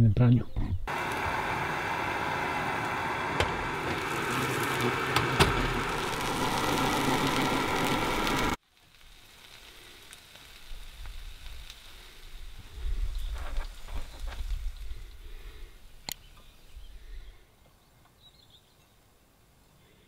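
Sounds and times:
food sizzling in a pan: 0:00.9 - 0:15.0
sharp pops of frying: 0:02.7 - 0:12.0.

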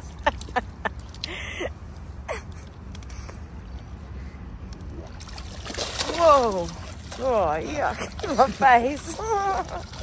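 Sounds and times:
fish tail splashing water: 0:04.9 - 0:10.0.

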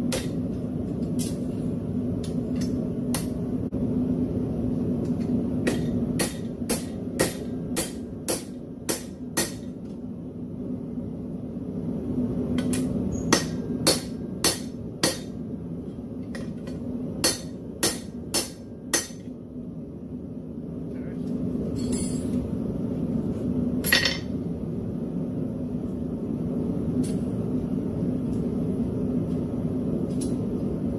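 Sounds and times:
hammer striking metal on anvil: 0:05.6 - 0:09.8, 0:12.6 - 0:15.4, 0:16.4 - 0:19.3, 0:23.8 - 0:24.3.

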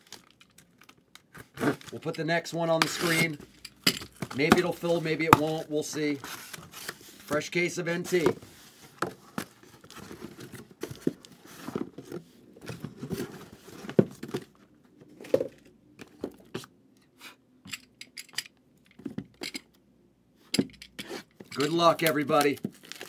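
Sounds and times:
cardboard and plastic wrapping rustling: 0:00.0 - 0:16.7, 0:21.4 - 0:23.0.

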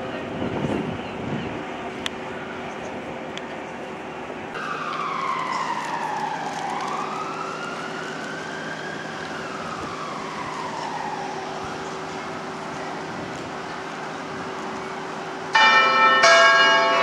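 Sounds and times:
emergency vehicle siren wailing: 0:04.5 - 0:17.0.

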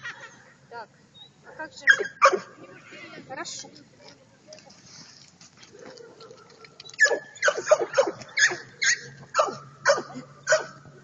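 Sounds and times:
dog barking high yips: 0:01.9 - 0:02.5, 0:06.0 - 0:10.8.

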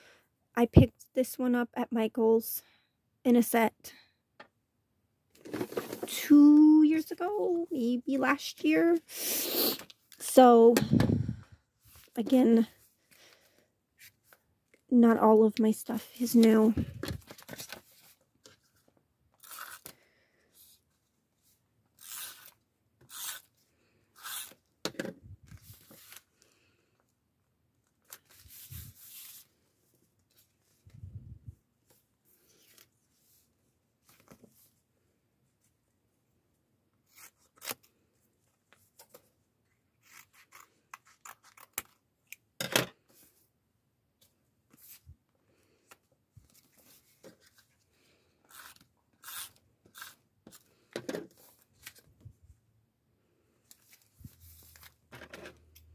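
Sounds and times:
paper rustling and rubbing: 0:28.1 - 0:29.6
scissors snipping paper: 0:40.0 - 0:42.0.

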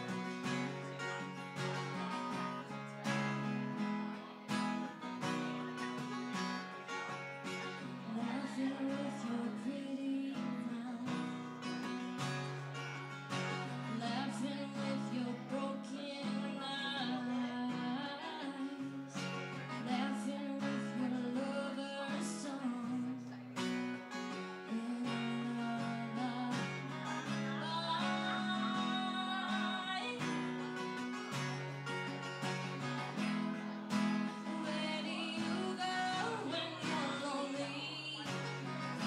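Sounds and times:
strummed acoustic guitar: 0:00.0 - 0:39.0
woman singing: 0:07.9 - 0:11.5, 0:13.7 - 0:23.4, 0:24.7 - 0:30.8, 0:34.2 - 0:39.0.

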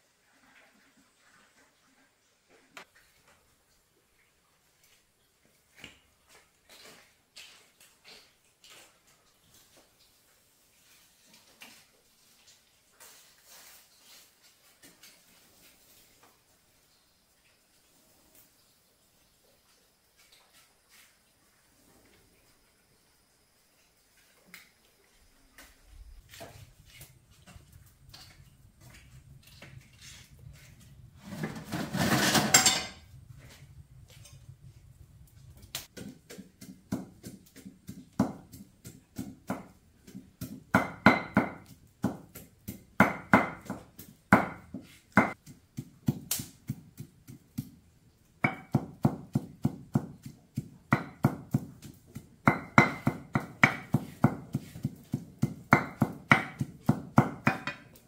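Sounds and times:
kitchen utensils knocking: 0:31.3 - 0:33.1.

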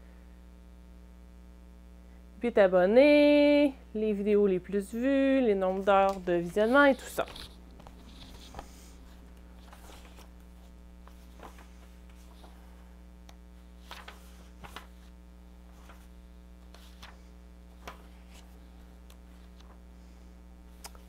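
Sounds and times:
electrical mains hum: 0:00.0 - 0:21.0
faint rustles: 0:05.7 - 0:12.9.

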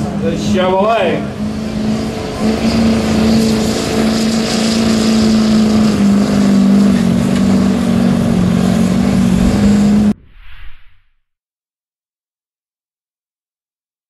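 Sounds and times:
diesel truck engine under load: 0:00.0 - 0:10.2.

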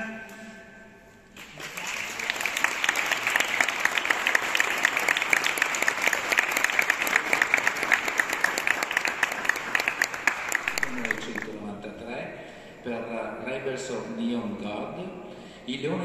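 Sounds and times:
sharp nearby claps: 0:01.3 - 0:11.6
audience clapping: 0:01.4 - 0:11.7.

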